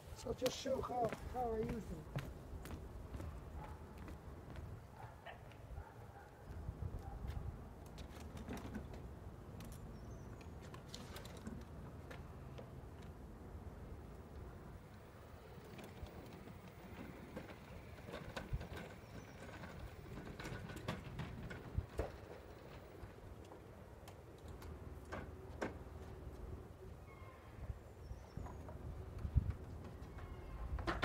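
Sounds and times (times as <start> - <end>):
footsteps on wooden deck: 0.0 - 5.6
hand cart rolling over boards: 15.2 - 23.7.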